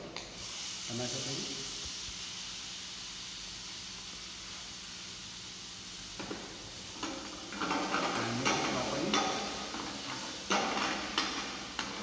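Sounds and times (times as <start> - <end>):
meat sizzling in a pan: 0.2 - 12.0
metal spoon scraping a pan: 7.0 - 12.0.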